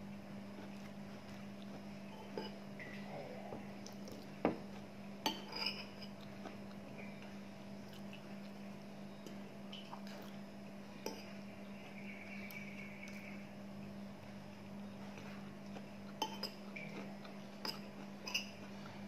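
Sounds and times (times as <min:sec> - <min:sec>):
cutlery clinking on ceramic bowl: 0:05.2 - 0:06.1, 0:16.2 - 0:16.6.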